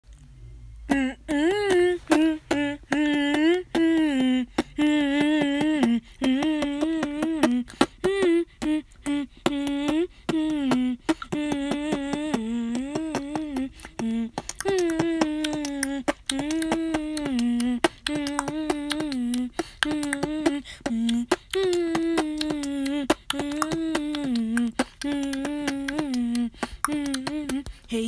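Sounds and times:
beatboxing hummed notes: 0:00.8 - 0:28.0
mouth percussion clicks: 0:00.9 - 0:27.9.

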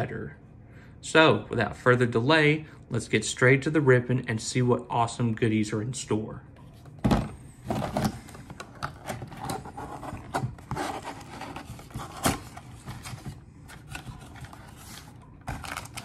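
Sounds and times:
cardboard rubbing and scraping: 0:09.0 - 0:15.8.

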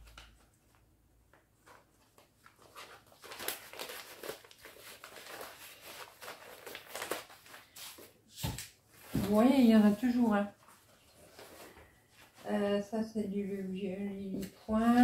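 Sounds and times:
paper sheets rustling: 0:01.5 - 0:12.8.

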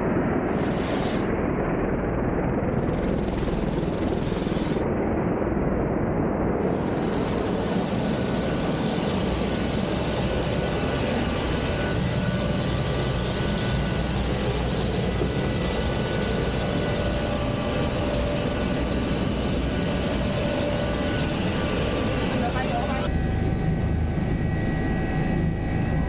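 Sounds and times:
helicopter turbine and rotor: 0:00.0 - 0:26.0
faint steady whining tones: 0:06.6 - 0:26.0.

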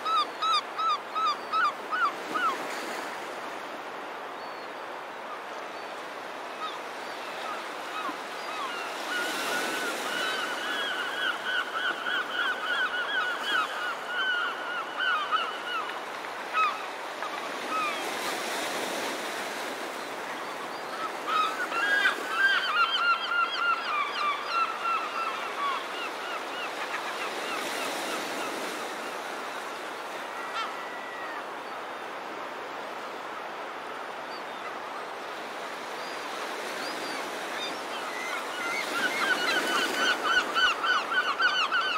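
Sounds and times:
flock of birds calling: 0:07.6 - 0:16.8, 0:21.0 - 0:28.8, 0:36.7 - 0:41.9.

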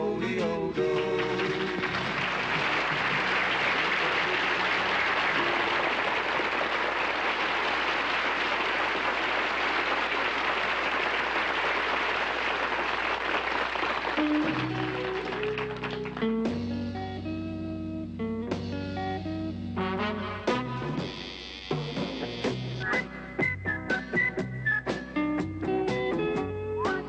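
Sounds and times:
audience applause: 0:00.9 - 0:16.4.

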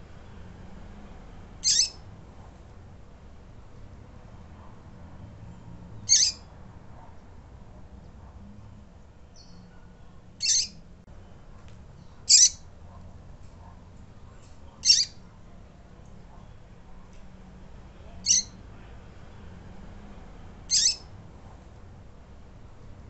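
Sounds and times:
bird high-pitched calls: 0:01.6 - 0:02.0, 0:06.0 - 0:06.5, 0:10.4 - 0:10.8, 0:12.0 - 0:12.7, 0:14.8 - 0:15.2, 0:18.2 - 0:18.6, 0:20.7 - 0:21.1.

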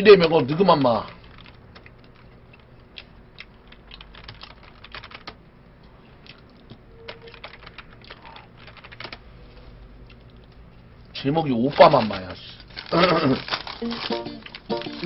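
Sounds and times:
computer keyboard typing: 0:00.8 - 0:05.4, 0:07.0 - 0:09.2, 0:13.8 - 0:15.0.

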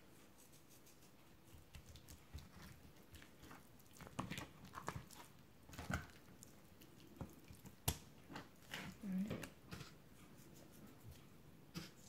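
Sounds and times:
hands rubbing salt into fish: 0:00.1 - 0:05.4.

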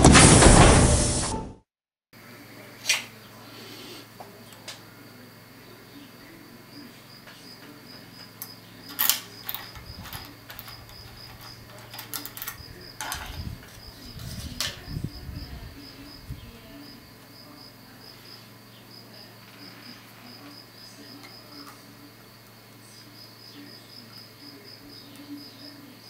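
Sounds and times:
metallic lock clicks: 0:08.4 - 0:13.8.

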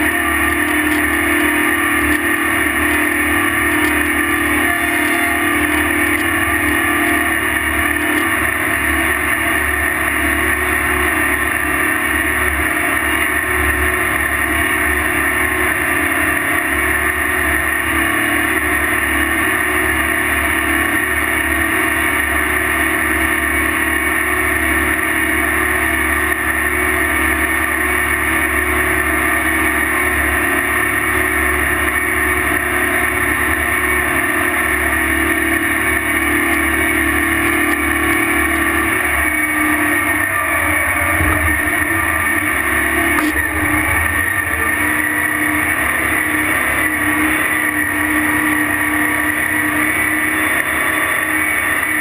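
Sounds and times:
tractor engine droning: 0:00.0 - 0:52.0.

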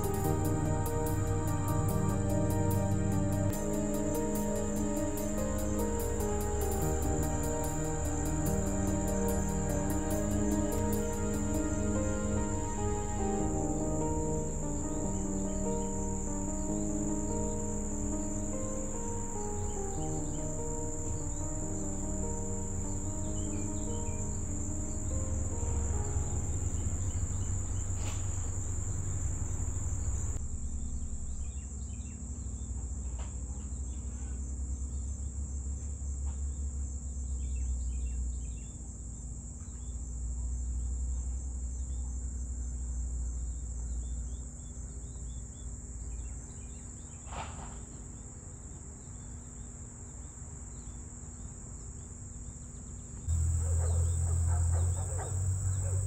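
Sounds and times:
bird chirps: 0:00.0 - 0:30.4, 0:53.3 - 0:56.0
insects trilling: 0:00.0 - 0:30.4, 0:53.3 - 0:56.0
low rumble: 0:00.0 - 0:32.0.

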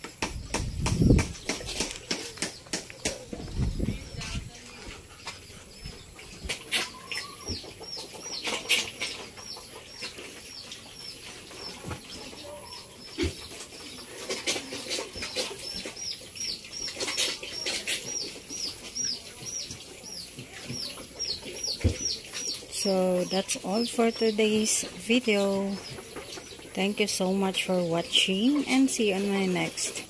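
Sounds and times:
sharp knocks or flaps: 0:00.2 - 0:03.7
bird chirping: 0:00.2 - 0:30.0.

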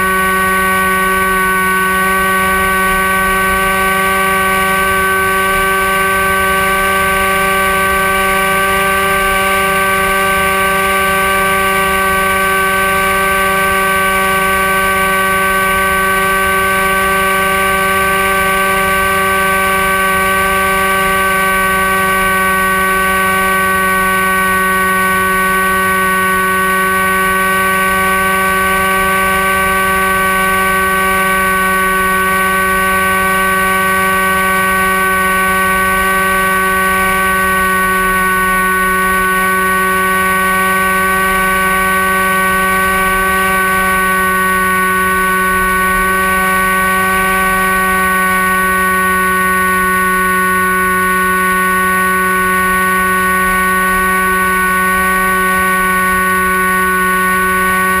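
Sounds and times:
electric motor and propeller whining: 0:00.0 - 0:58.0.

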